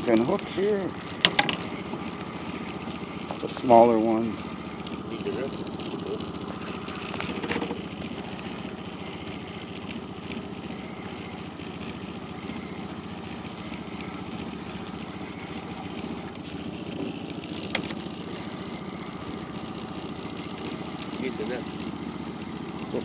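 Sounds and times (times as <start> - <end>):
outboard motor running: 0.0 - 23.0.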